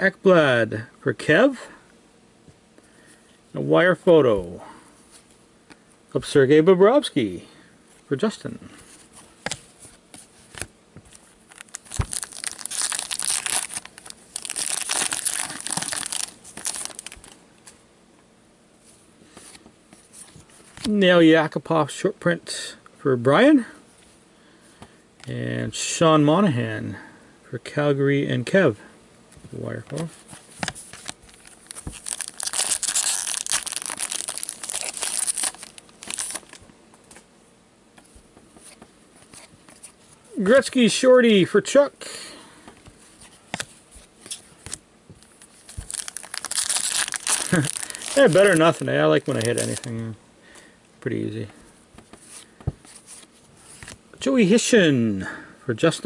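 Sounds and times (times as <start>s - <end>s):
cards being handled: 8.8s - 17.8s, 29.3s - 37.3s, 42.7s - 50.0s, 52.0s - 54.0s
wrapper tearing and crinkling: 11.5s - 17.4s, 31.0s - 36.6s, 44.7s - 50.0s.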